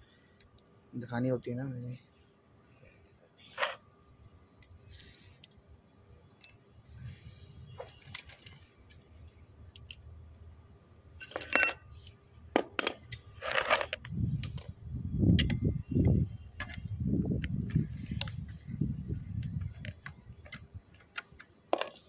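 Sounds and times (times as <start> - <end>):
metal tool clinks and clicks: 6.4 - 6.6, 11.2 - 12.0.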